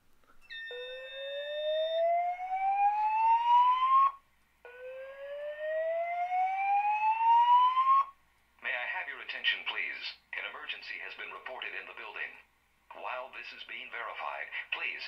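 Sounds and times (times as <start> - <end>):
high beep: 0.4 - 1.7
rising whoop alarm tone: 0.5 - 8.1.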